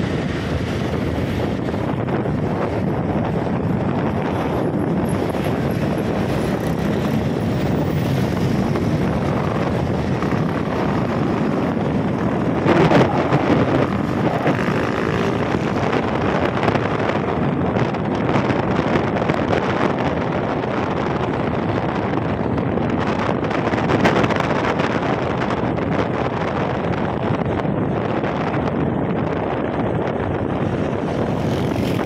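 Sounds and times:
motorcycle engine running: 0.0s - 17.6s
wind rushing over microphone: 0.0s - 32.0s.

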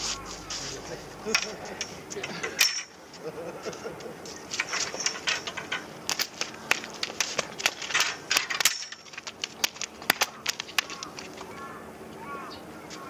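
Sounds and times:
small hard objects clicking: 4.6s - 11.5s.

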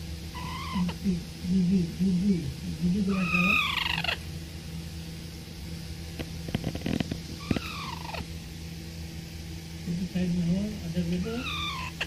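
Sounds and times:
parakeet falling calls: 0.4s - 1.0s, 3.1s - 4.3s, 7.4s - 8.3s, 11.2s - 12.0s.

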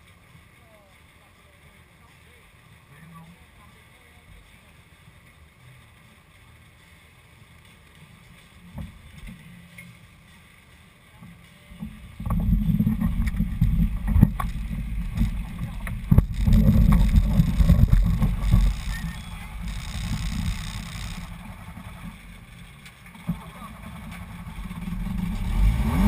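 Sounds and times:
off-road vehicle engine rumble: 0.0s - 26.0s
vehicle knocks and jolts: 12.2s - 22.1s.

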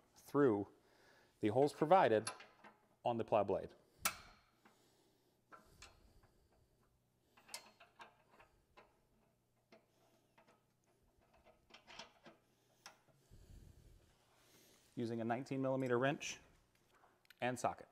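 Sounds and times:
metallic clicks of bolts and washers: 1.6s - 2.9s, 4.0s - 4.8s, 5.5s - 13.2s.

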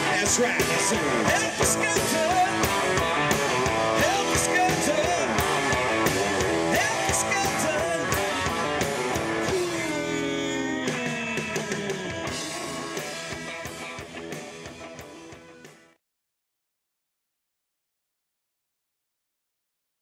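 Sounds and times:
live rock band playing: 0.0s - 16.0s.

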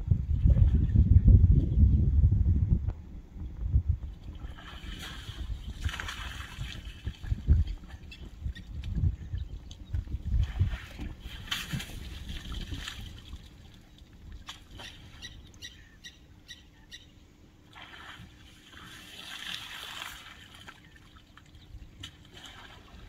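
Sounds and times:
water splashing and trickling: 4.2s - 15.6s, 17.7s - 23.0s.

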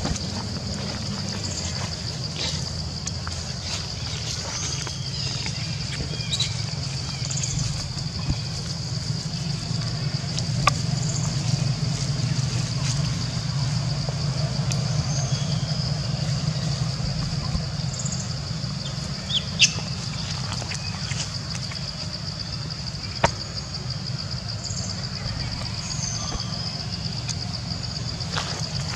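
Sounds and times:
faint chirps: 3.6s - 28.2s
low rumble: 5.6s - 20.6s, 23.9s - 28.9s.

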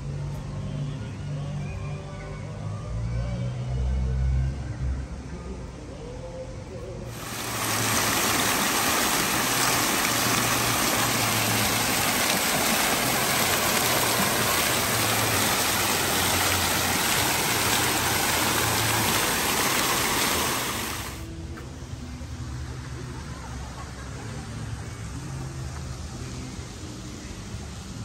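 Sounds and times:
fountain water splashing: 7.1s - 21.3s.

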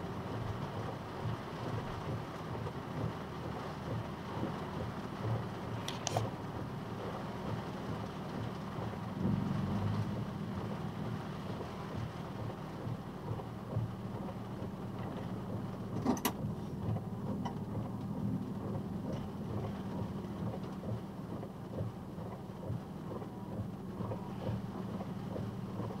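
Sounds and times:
rain on truck: 0.0s - 26.0s
truck engine rumbling: 0.0s - 26.0s.

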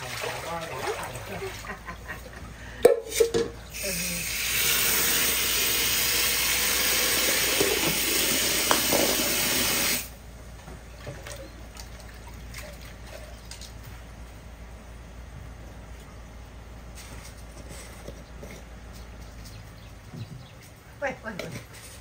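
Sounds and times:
water running from a tap: 3.8s - 10.1s.

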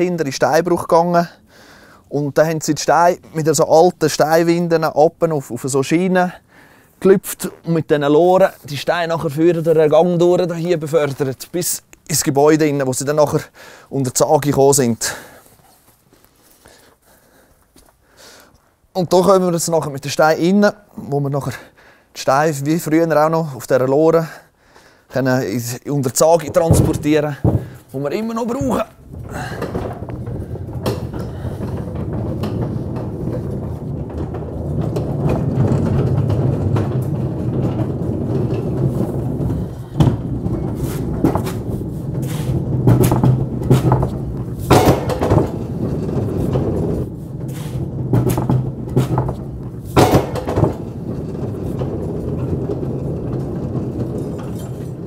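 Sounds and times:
stone-working machinery rumbling: 26.0s - 55.0s
knocks and clanks of stone and metal: 26.4s - 55.0s.

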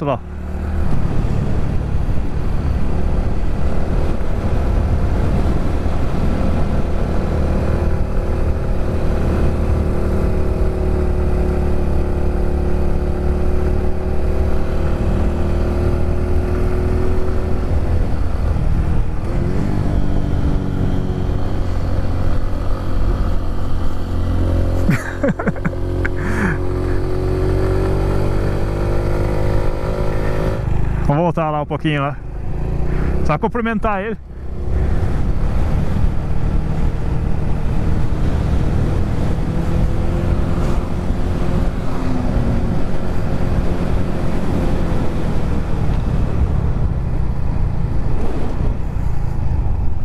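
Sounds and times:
wind noise on microphone: 34.3s - 50.0s.

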